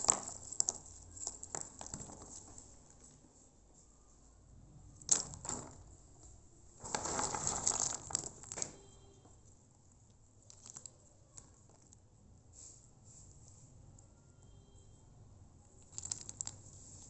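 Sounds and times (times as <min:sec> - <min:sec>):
dried nuts clattering: 0:00.0 - 0:03.0, 0:05.0 - 0:05.9, 0:06.8 - 0:08.9, 0:10.5 - 0:12.0, 0:15.8 - 0:17.0.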